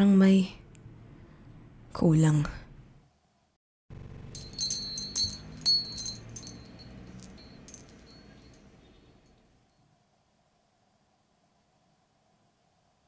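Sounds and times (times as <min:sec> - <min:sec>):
metal wind chime tinkling: 0:04.3 - 0:09.8.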